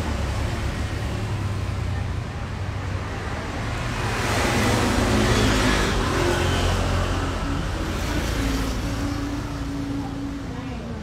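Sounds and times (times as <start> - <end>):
low rumble of traffic: 0.0 - 11.0
vehicle passing on road: 0.0 - 11.0.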